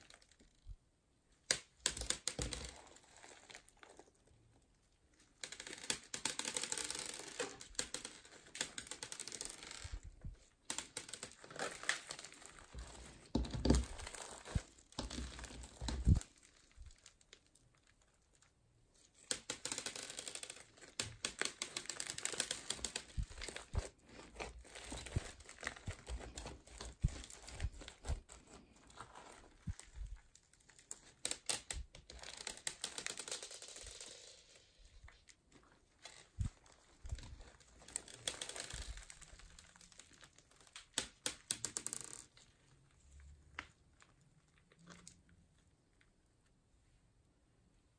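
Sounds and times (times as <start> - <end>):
slime beads crackling and popping: 5.4 - 18.3, 19.2 - 35.2, 36.0 - 42.2.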